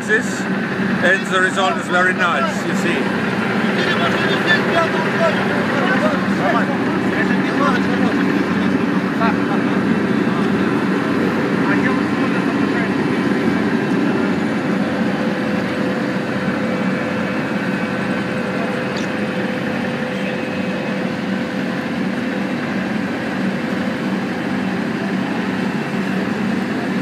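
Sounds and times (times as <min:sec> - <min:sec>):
diesel engine droning: 0:00.0 - 0:27.0.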